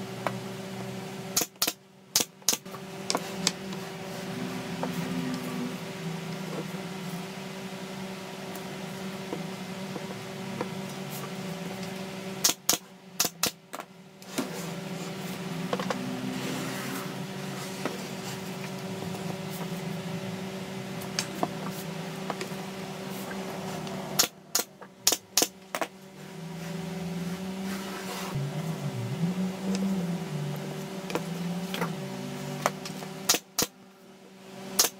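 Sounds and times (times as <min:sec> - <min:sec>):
nail gun firing: 0:01.4 - 0:02.6, 0:12.4 - 0:13.6, 0:33.3 - 0:33.7
low hum: 0:02.6 - 0:34.0.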